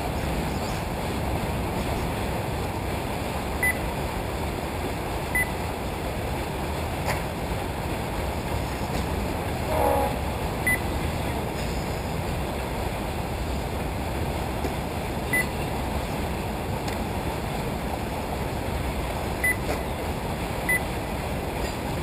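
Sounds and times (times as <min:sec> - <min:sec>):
rumbling outdoor noise: 0:00.0 - 0:22.0
short high timing beeps: 0:05.4 - 0:05.6, 0:09.8 - 0:10.8.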